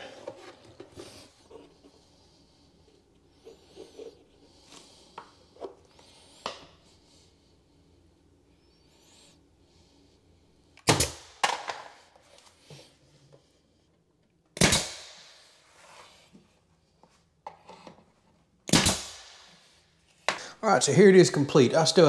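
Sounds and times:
nail gun firing: 0:10.8 - 0:11.9, 0:14.6 - 0:15.3, 0:18.7 - 0:19.6.

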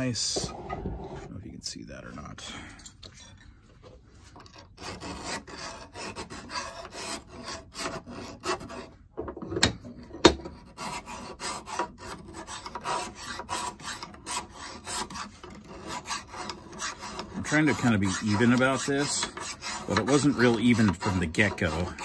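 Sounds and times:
hand file rasping on metal: 0:04.2 - 0:09.0, 0:09.8 - 0:22.0.

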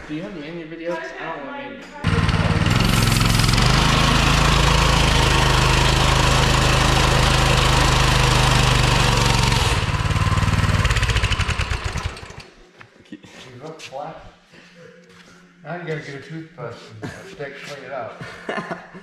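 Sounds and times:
mini bike engine revving: 0:02.0 - 0:12.5
tire spinning on concrete: 0:02.0 - 0:12.5.

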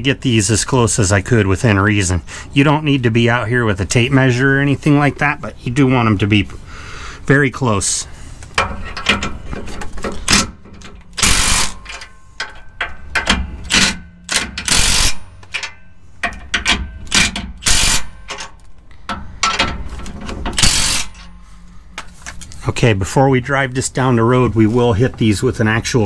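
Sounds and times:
impact gun bursts: 0:11.2 - 0:11.9.

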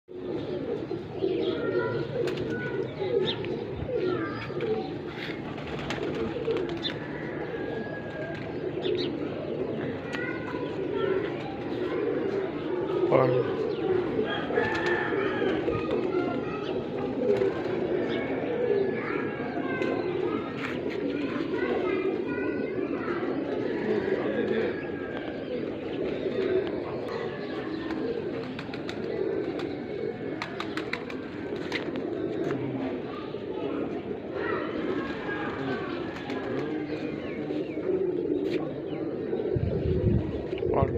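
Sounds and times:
pigeons cooing: 0:00.1 - 0:40.9.

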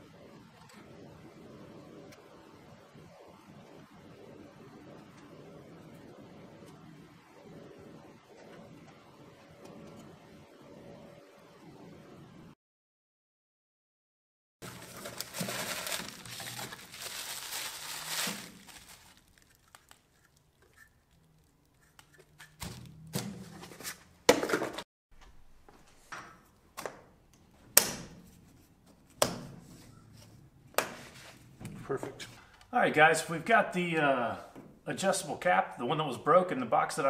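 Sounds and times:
bubble wrap crinkling: 0:14.6 - 0:22.6.

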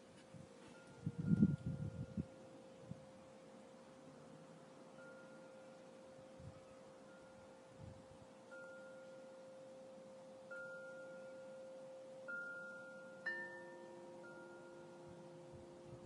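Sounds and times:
chime-like notes: 0:05.0 - 0:05.9, 0:08.5 - 0:09.6, 0:10.5 - 0:15.4
steady held tone: 0:08.4 - 0:16.0.

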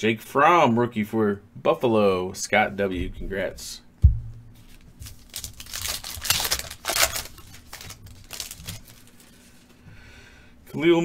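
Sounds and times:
thump: 0:04.0 - 0:04.5
foil wrapper tearing and crinkling: 0:04.7 - 0:09.5.

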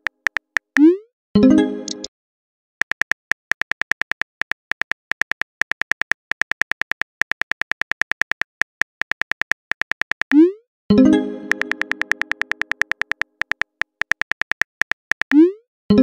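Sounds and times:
phone keyboard typing clicks: 0:00.0 - 0:00.9, 0:02.8 - 0:10.4, 0:11.5 - 0:15.4.

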